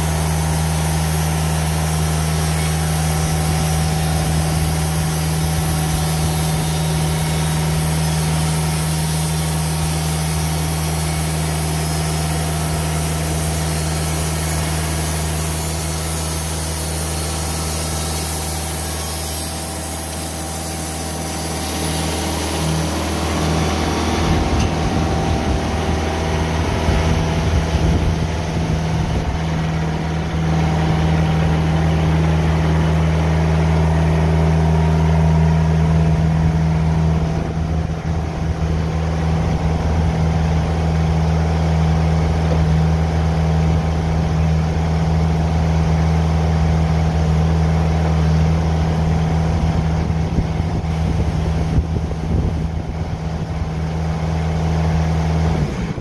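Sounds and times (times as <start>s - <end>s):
saw blade cutting log hiss: 0.0s - 37.6s
sawmill engine running: 0.0s - 56.0s.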